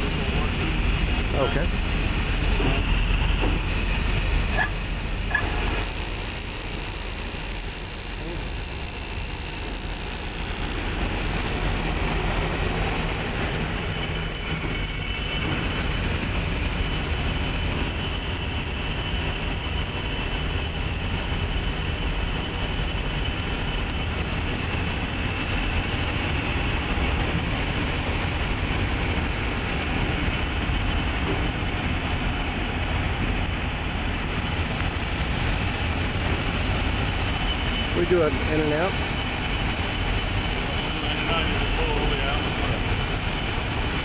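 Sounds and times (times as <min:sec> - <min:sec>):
grinder running: 0:00.0 - 0:18.0.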